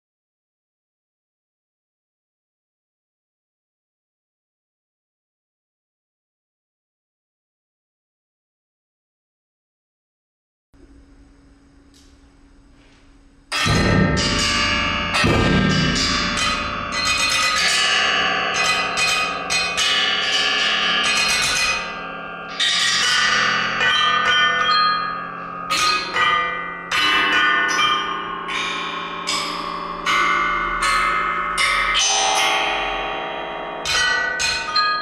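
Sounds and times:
chamber music for piano and percussion: 13.5s - 35.0s
ringing bell-like strikes: 13.5s - 35.0s.

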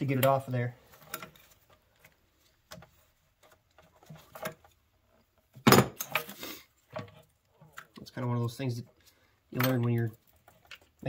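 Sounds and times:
hand tools clicking and knocking: 9.5s - 11.0s.

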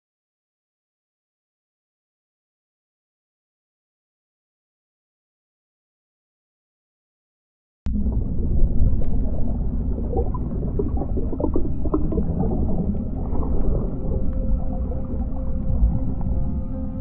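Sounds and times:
deep underwater rumble: 7.9s - 17.0s
water bubbling and gurgling: 7.9s - 17.0s.

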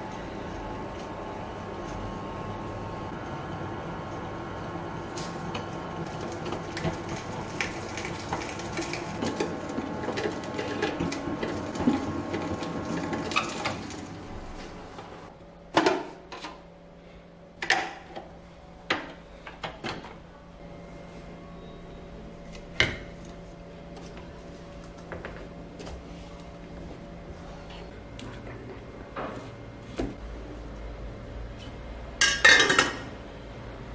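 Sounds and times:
wet grinder motor hum: 5.4s - 14.8s.

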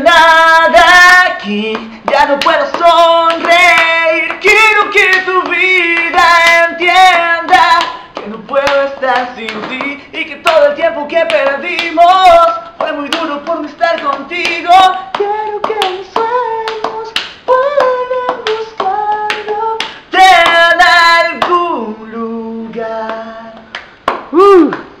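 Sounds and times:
man singing a cappella: 0.0s - 23.7s.

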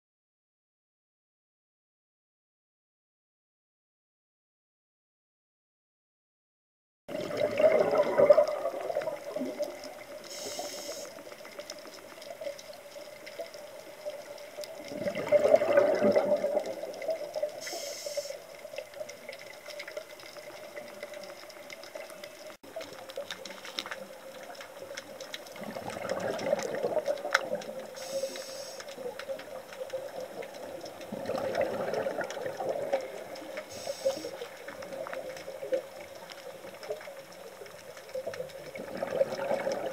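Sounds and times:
bubbly exhale underwater: 7.1s - 11.1s, 14.8s - 18.0s, 25.6s - 28.6s, 29.9s - 34.1s, 38.6s - 39.9s
faint inhale hiss: 10.1s - 11.5s, 17.5s - 18.8s, 27.8s - 29.2s, 33.4s - 35.0s.

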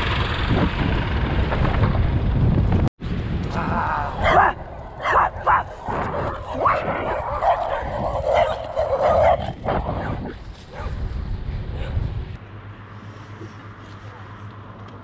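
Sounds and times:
wind rumbling on microphone: 0.0s - 12.4s
dog barking and yapping: 4.2s - 11.0s, 11.7s - 12.0s.

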